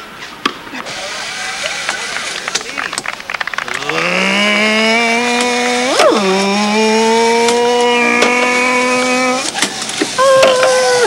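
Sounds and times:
small engine revving: 3.7s - 9.6s.

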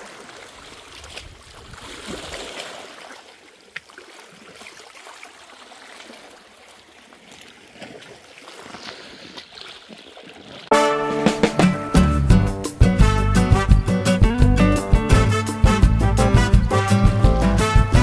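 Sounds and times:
waves lapping against rocks: 0.0s - 10.7s.

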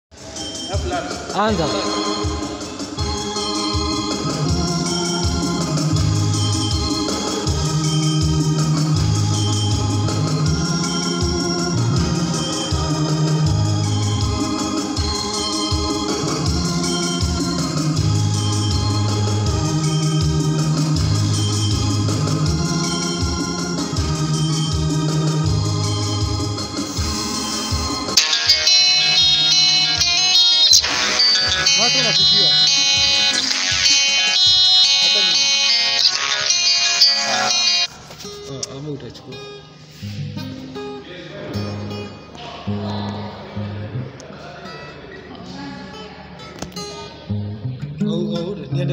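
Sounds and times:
electronic organ playing chords: 0.1s - 37.9s.

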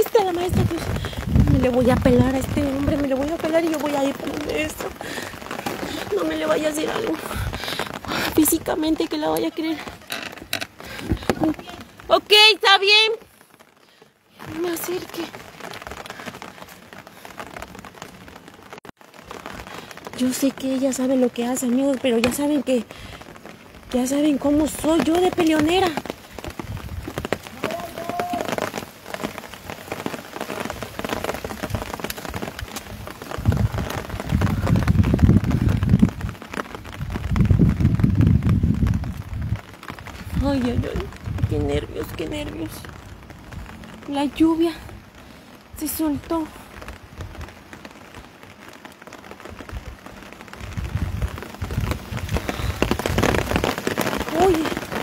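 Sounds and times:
low rumbling on microphone: 0.0s - 8.8s, 30.7s - 43.8s, 50.6s - 54.4s
rain patter: 0.0s - 55.0s
steady rain hiss: 0.0s - 55.0s.

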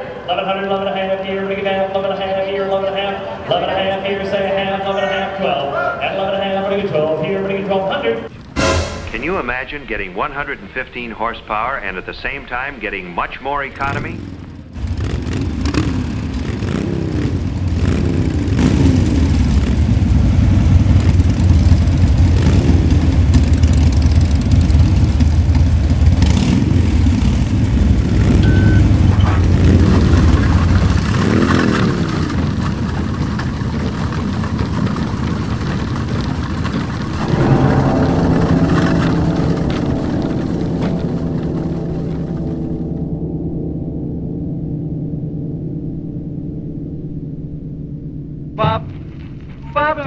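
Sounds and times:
car engines revving: 0.0s - 43.2s
steady held tone: 8.2s - 14.7s, 26.9s - 29.7s, 37.2s - 50.0s.

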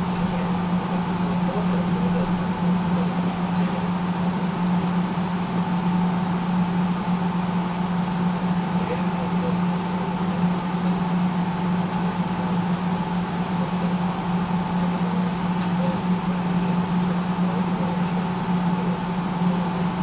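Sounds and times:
tram electric hum: 0.0s - 20.0s.

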